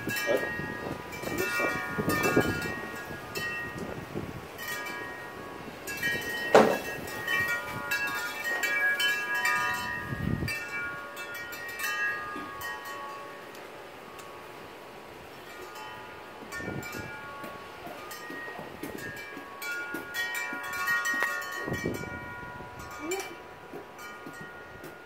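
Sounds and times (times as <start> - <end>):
ringing chime tones: 4.6 - 14.6, 15.5 - 25.0.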